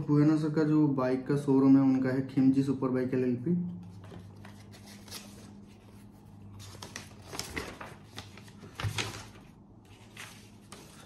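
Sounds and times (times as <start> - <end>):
paper rustling and crinkling: 3.8 - 11.0.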